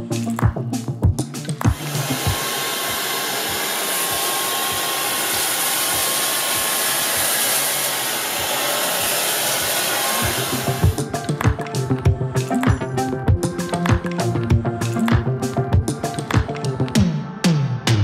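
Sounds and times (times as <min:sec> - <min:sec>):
stick vacuum running: 0:01.4 - 0:11.7.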